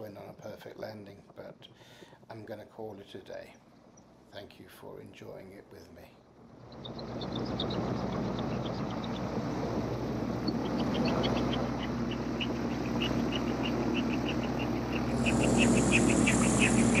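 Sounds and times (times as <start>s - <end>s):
aircraft engine running: 6.4s - 17.0s
high ticking: 9.9s - 17.0s.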